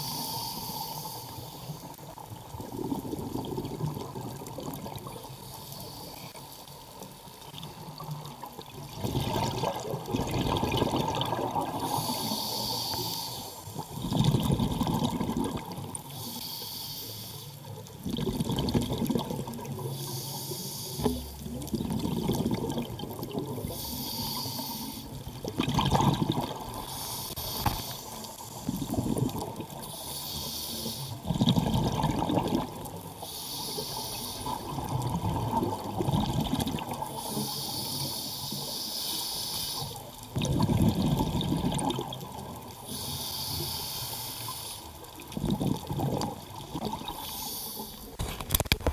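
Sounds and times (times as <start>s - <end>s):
diver inhaling through regulator: 0.0s - 1.8s, 11.7s - 13.8s, 16.1s - 17.6s, 19.8s - 21.5s, 23.6s - 25.2s, 26.8s - 29.2s, 29.8s - 31.3s, 33.2s - 34.7s, 37.1s - 40.1s, 42.8s - 44.9s, 47.0s - 48.2s
exhaled bubbles rushing: 2.6s - 5.2s, 7.9s - 12.0s, 13.8s - 16.0s, 18.0s - 19.9s, 21.4s - 23.8s, 25.1s - 26.9s, 28.7s - 29.8s, 31.2s - 33.1s, 34.4s - 37.1s, 40.3s - 42.8s, 45.2s - 47.2s.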